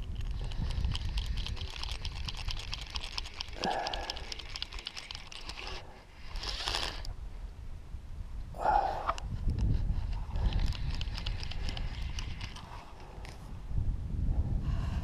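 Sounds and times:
fishing reel ratcheting clicks: 0:00.0 - 0:07.1, 0:10.0 - 0:12.8.

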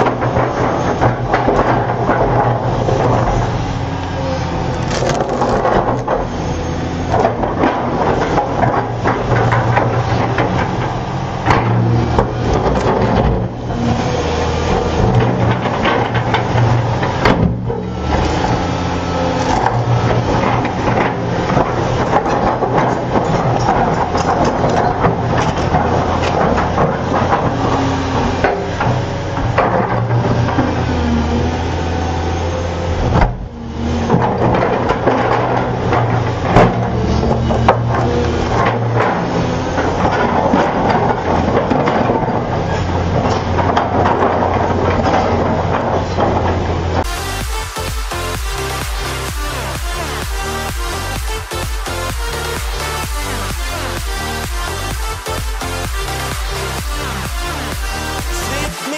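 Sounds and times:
excavator diesel engine running: 0:00.0 - 0:58.9
rock scraping and crunching: 0:00.1 - 0:17.2, 0:18.0 - 0:28.4.

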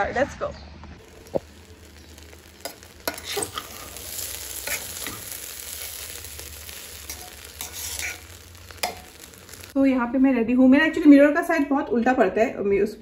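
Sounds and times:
steady sizzle: 0:01.0 - 0:11.2
spoon scraping metal pot: 0:07.1 - 0:09.1.

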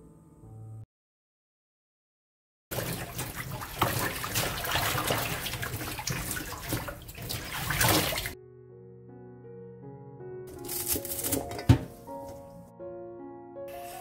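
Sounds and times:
hands swishing and rinsing stems: 0:02.7 - 0:08.4, 0:10.5 - 0:12.6
tap water pouring into steel bowl: 0:02.7 - 0:08.4
water splashing: 0:02.7 - 0:08.4.

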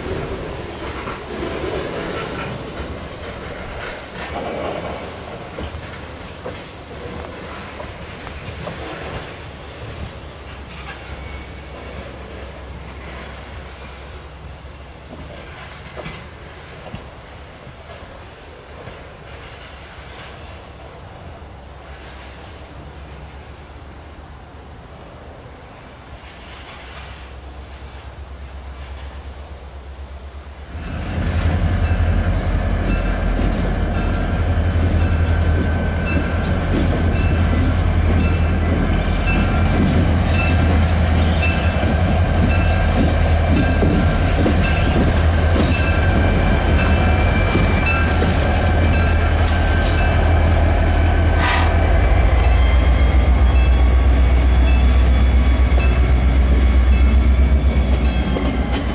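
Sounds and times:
diesel locomotive running: 0:00.0 - 0:58.9
wheels clicking over rail joints: 0:34.8 - 0:50.2.

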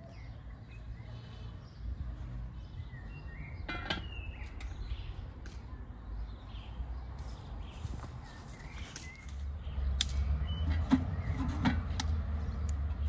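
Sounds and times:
metal handle and lid clanking: 0:03.7 - 0:04.2.

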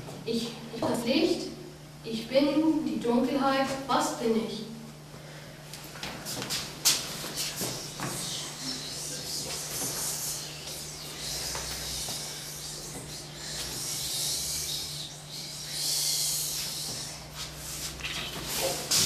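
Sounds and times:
people whispering: 0:07.3 - 0:17.9.

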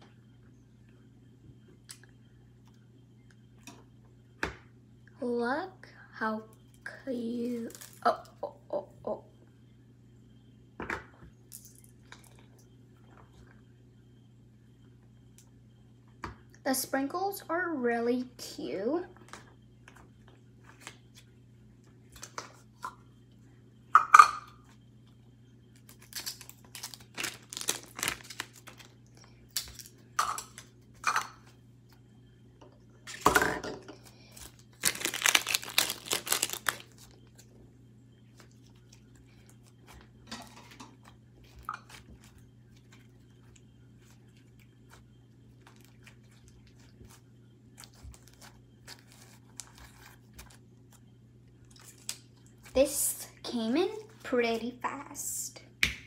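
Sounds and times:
steady low hum: 0:00.0 - 0:56.0
slime crackling and popping: 0:26.0 - 0:28.9, 0:34.7 - 0:37.1.

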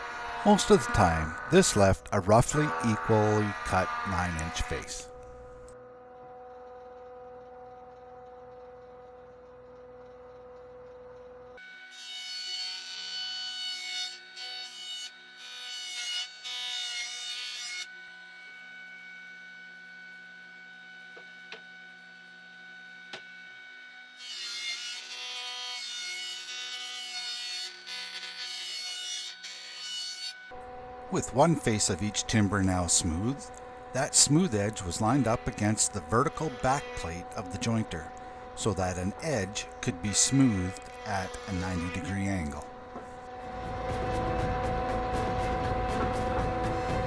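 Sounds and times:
jointer planing timber: 0:00.0 - 0:05.2, 0:24.2 - 0:47.0
jointer motor hum: 0:00.0 - 0:11.8, 0:30.5 - 0:47.0.

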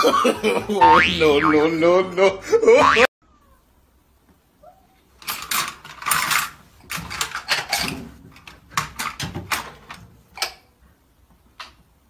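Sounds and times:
dishes rattling in a dish rack: 0:05.2 - 0:10.7.

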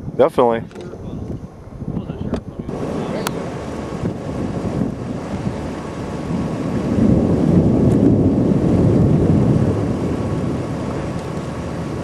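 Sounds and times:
wind buffeting microphone: 0:00.0 - 0:12.0
low rumble: 0:01.1 - 0:12.0.

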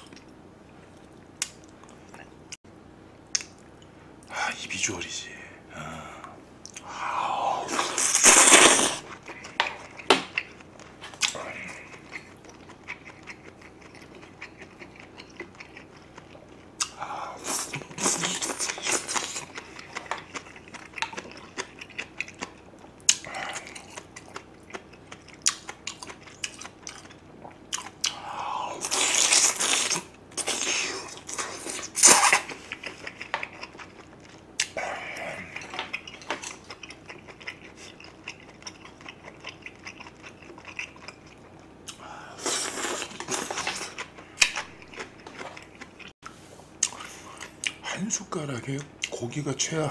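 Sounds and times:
slurping noodles: 0:07.3 - 0:09.1
chewing with wet mouth noises: 0:07.7 - 0:46.2, 0:46.8 - 0:47.8.

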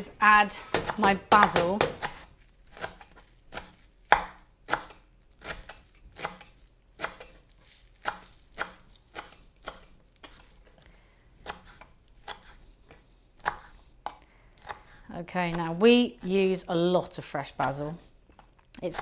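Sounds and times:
knife chopping on wooden board: 0:00.6 - 0:07.3, 0:08.0 - 0:10.4, 0:13.4 - 0:15.8.

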